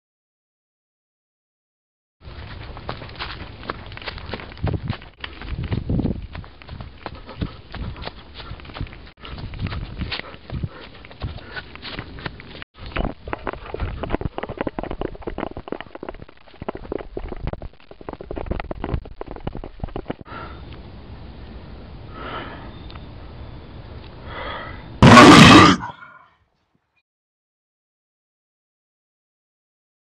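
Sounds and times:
footsteps crunching through dry leaves: 0:02.2 - 0:12.6.

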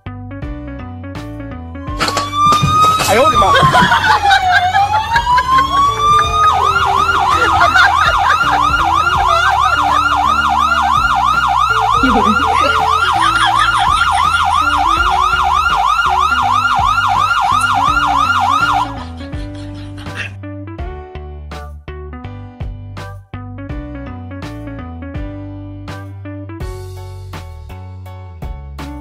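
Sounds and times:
background music: 0:00.0 - 0:29.0
electronic siren wailing and yelping: 0:01.9 - 0:19.2.

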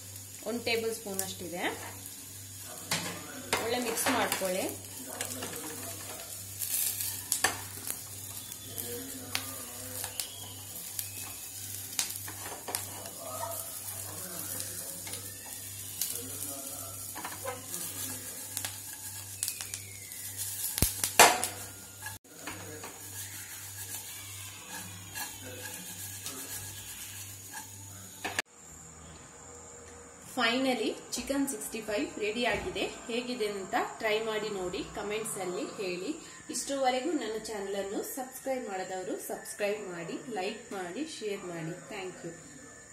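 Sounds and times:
oil sizzling: 0:00.0 - 0:28.5
wooden spatula scraping frying pan: 0:03.0 - 0:28.2.

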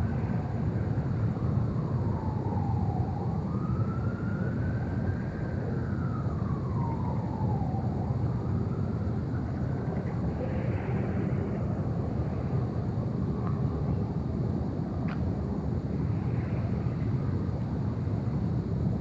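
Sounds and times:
distant siren wailing: 0:00.0 - 0:14.2
low outdoor rumble: 0:05.8 - 0:19.0.

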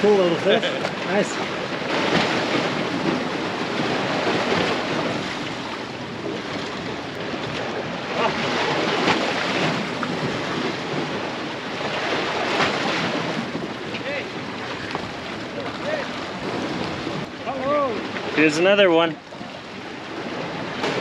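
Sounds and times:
surf washing against rocks: 0:00.0 - 0:21.0
wind buffeting microphone: 0:00.0 - 0:21.0.

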